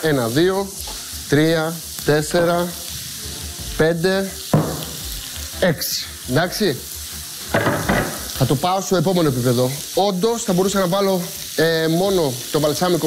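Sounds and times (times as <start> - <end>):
vegetables sizzling in oil: 0.0 - 13.0
single knock: 4.5 - 5.0, 7.6 - 8.2.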